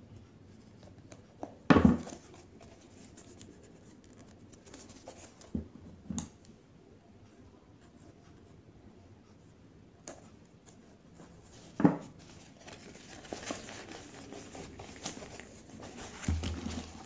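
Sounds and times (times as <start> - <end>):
plastic wrapping rustling: 12.3 - 17.0.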